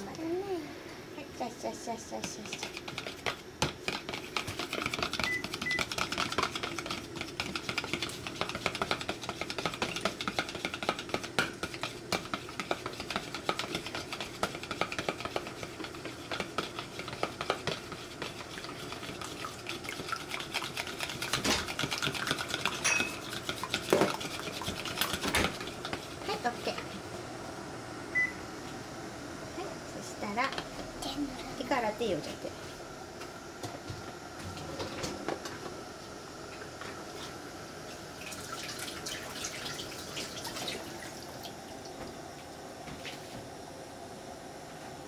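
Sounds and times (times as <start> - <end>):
chopsticks beating eggs in bowl: 1.7 - 27.1.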